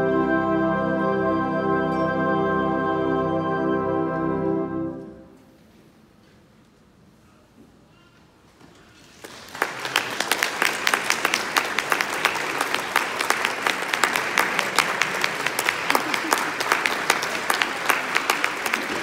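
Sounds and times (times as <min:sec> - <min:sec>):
audience applause: 0:09.1 - 0:19.0.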